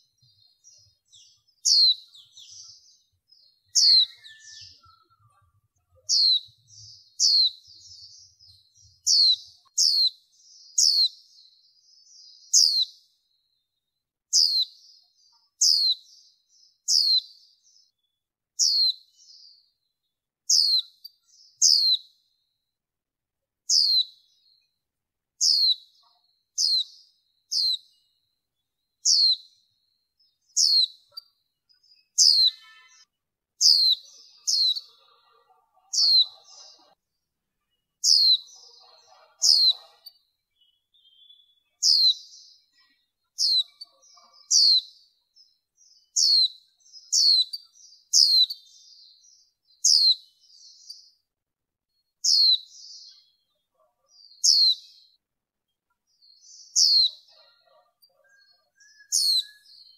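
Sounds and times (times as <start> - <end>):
bird giving high chirps: 1.1 - 10.2, 32.0 - 33.0, 33.6 - 37.0, 38.0 - 42.5.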